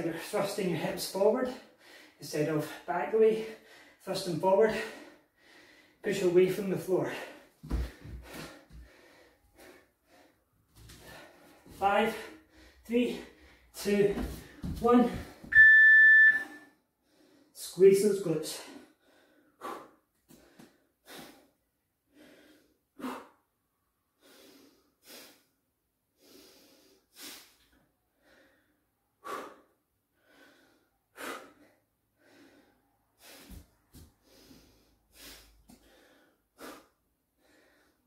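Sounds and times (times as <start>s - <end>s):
man breathing hard: 1.6s - 4.1s, 4.7s - 6.0s, 7.1s - 13.8s, 18.5s - 38.0s.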